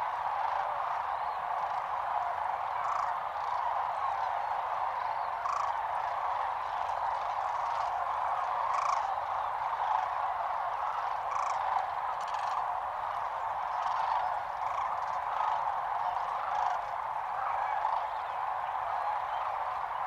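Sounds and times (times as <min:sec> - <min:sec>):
cranes calling: 0:02.7 - 0:18.4.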